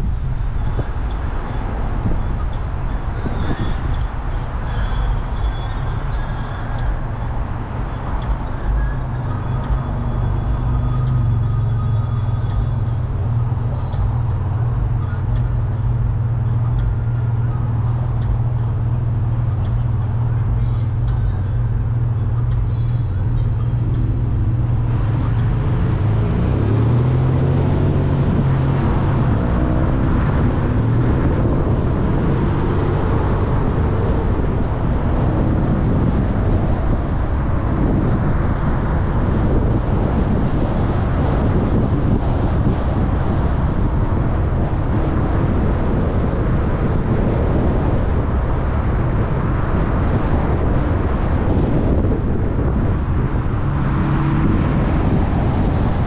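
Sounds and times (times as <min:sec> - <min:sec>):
car engine and road rumble: 0:00.0 - 0:56.0
tyre and wind noise: 0:00.0 - 0:56.0.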